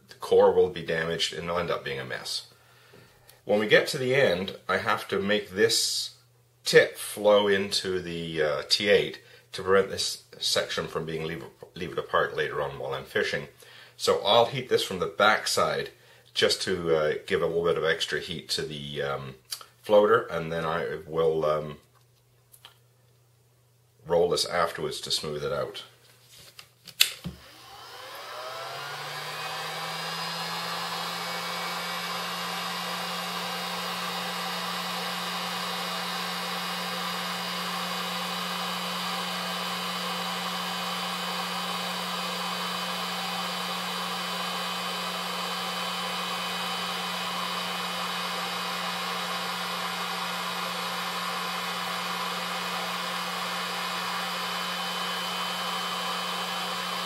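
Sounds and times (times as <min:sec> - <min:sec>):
heat gun fan humming: 0:27.0 - 0:57.0.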